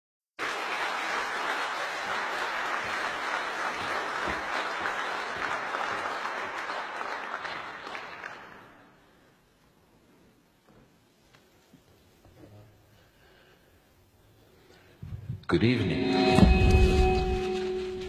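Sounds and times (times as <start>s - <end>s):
audience applauding: 0.4s - 9.1s.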